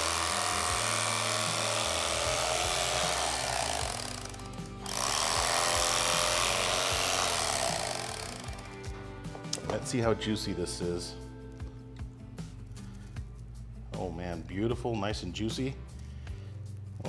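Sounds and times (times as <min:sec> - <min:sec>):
electric carving knife running: 0:00.0 - 0:08.9.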